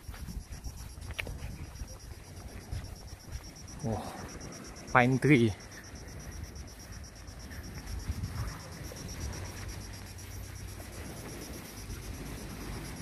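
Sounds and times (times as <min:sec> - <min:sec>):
insects chirping: 0:00.0 - 0:13.0.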